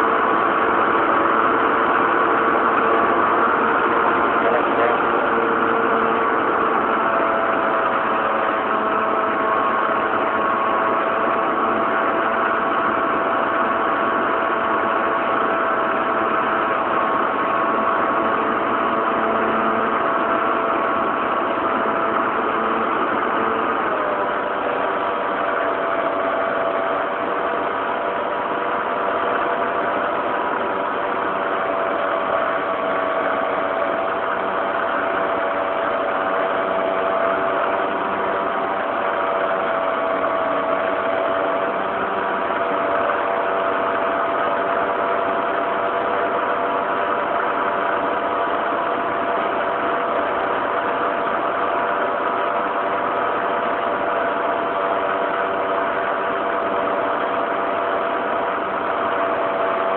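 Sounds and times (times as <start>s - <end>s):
model airplane motor and propeller: 0.0s - 59.9s.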